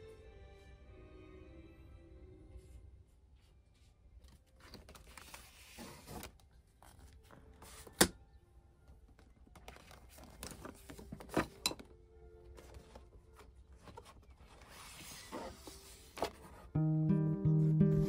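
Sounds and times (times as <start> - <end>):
rustling of desk items: 8.9 - 16.7
notebook knocking plastic organiser: 9.2 - 11.9.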